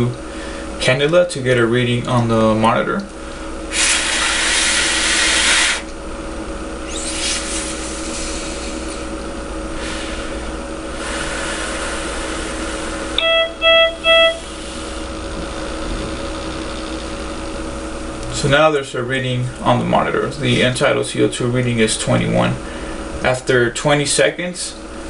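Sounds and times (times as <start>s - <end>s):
steady electrical hum: 0.0s - 25.0s
breath hissing through tube: 3.7s - 5.9s, 6.9s - 9.0s, 9.8s - 13.1s
patient monitor alarm beeps: 13.2s - 14.5s.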